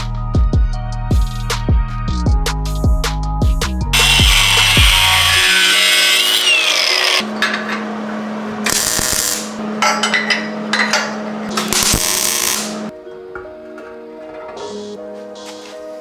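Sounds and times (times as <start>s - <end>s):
angle grinder cutting steel: 4.0s - 7.3s.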